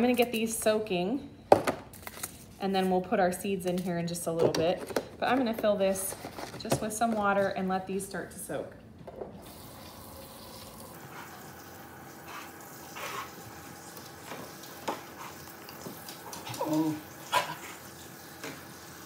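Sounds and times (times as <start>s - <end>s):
faucet running water: 9.4s - 19.0s.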